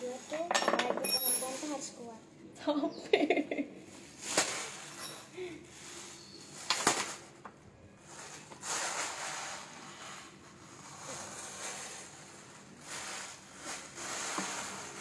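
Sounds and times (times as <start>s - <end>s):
plastic parts rustling: 4.0s - 15.0s.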